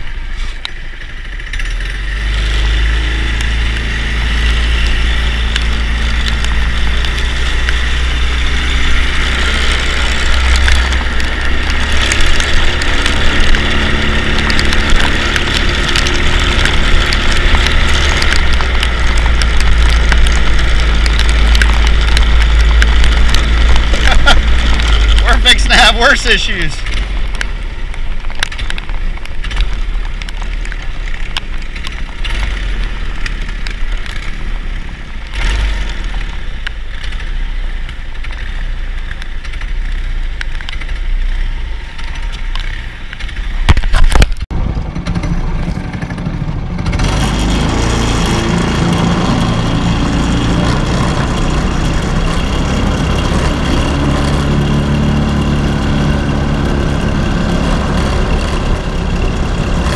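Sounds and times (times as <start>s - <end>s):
small engine rumbling: 0.0s - 59.9s.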